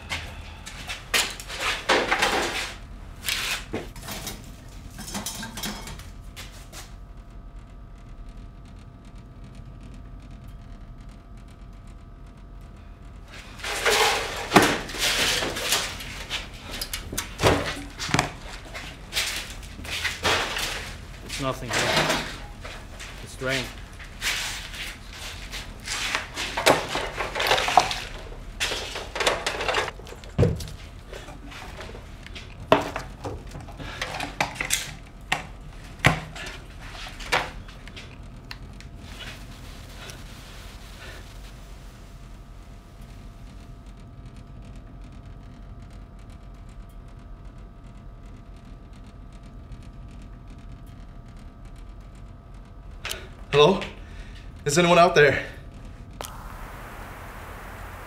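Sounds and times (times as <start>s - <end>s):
objects clattering: 26.0s - 34.8s.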